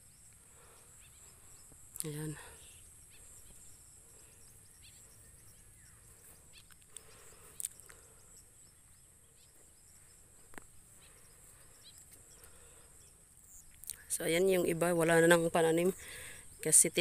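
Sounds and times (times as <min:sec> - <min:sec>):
insect chorus: 0:00.0 - 0:17.0.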